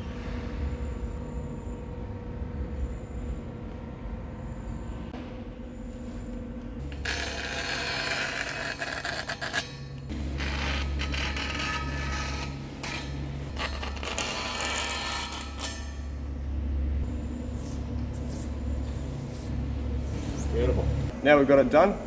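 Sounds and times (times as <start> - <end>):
low machine hum: 0.0 - 22.0
metal parts scraping and creaking: 6.8 - 16.2.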